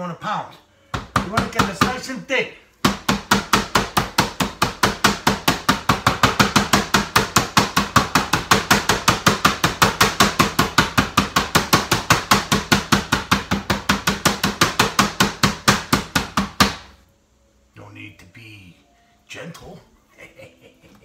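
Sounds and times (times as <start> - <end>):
meat mallet pounding chicken: 0.9 - 2.1, 2.8 - 17.0.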